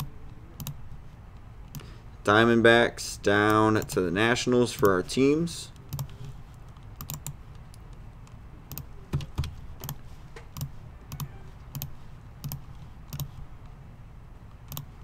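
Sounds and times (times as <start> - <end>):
low steady hum: 0.0 - 15.0
mouse and keyboard clicks: 5.8 - 13.4.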